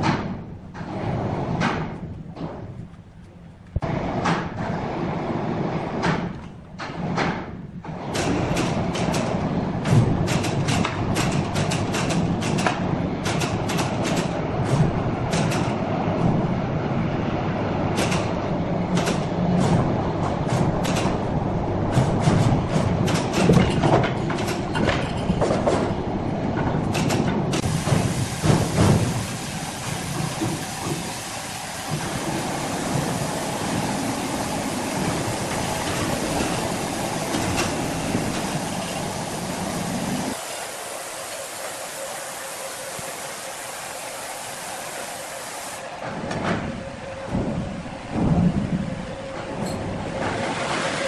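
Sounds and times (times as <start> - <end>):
log carriage rolling on steel rails: 3.9 - 40.4, 45.8 - 51.0
sharp clacks and knocks: 5.9 - 16.4, 17.9 - 21.3, 21.9 - 26.0.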